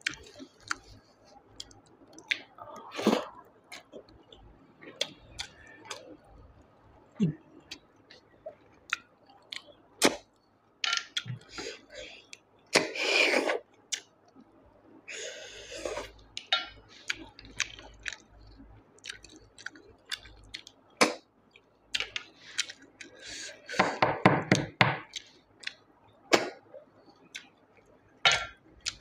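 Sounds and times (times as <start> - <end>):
wet mouth clicks and chewing: 0.0 - 6.4, 13.8 - 14.5, 16.0 - 23.2, 25.0 - 25.8, 27.2 - 29.0.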